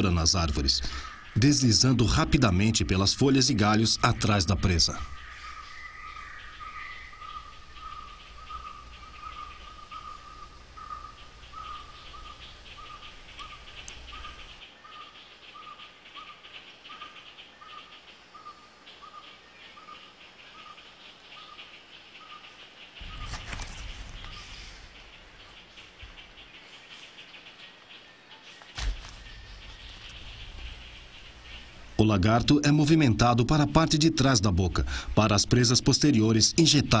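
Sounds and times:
fast insect trill: 5.1s - 14.6s.

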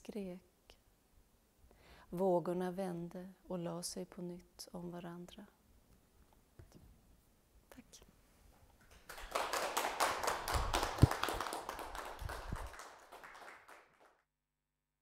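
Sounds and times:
hands clapping: 8.8s - 14.2s.

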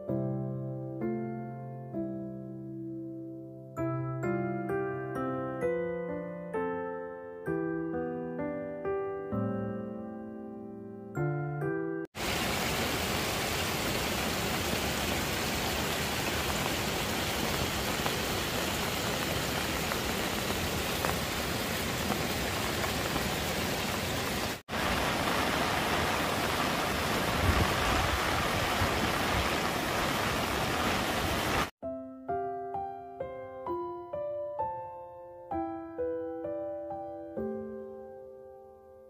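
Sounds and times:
heavy rain hissing: 12.2s - 31.7s
rushing river: 12.2s - 31.7s.

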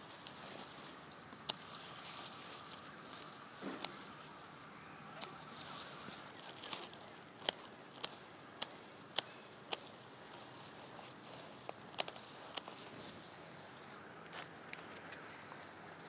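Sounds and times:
leaves rustling: 0.0s - 16.0s
garden scissors snipping stems: 0.1s - 4.4s, 5.0s - 13.2s.

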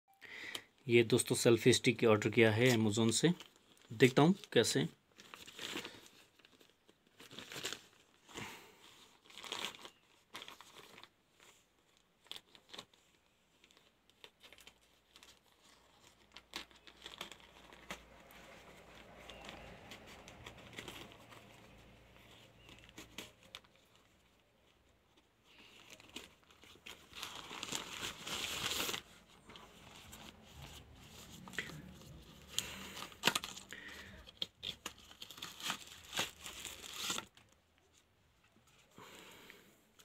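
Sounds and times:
packaging rustling and crinkling: 2.5s - 39.2s
scissors cutting plastic mailer: 31.3s - 37.4s.

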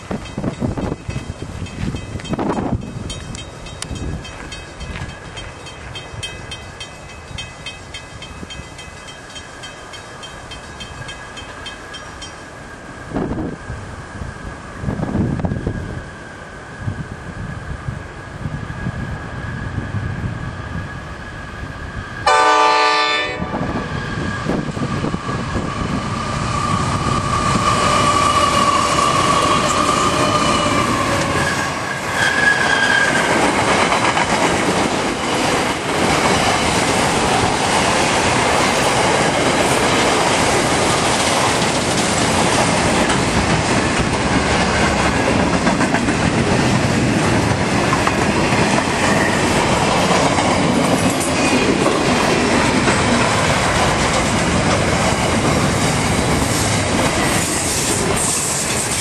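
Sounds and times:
freight train rumbling: 0.0s - 59.0s
train horn blast: 22.2s - 23.8s
wheels clacking over rails: 26.5s - 59.0s.

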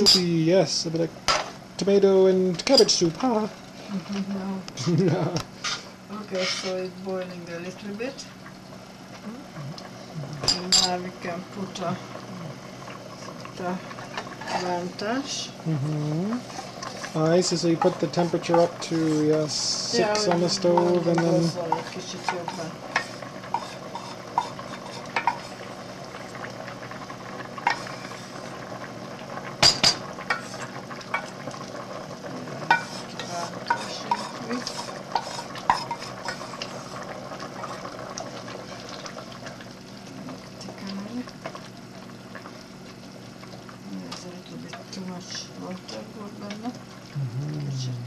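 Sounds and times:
spoon scraping saucepan: 5.6s - 6.8s, 20.3s - 25.7s, 32.7s - 37.0s
pot hissing: 7.6s - 43.7s.

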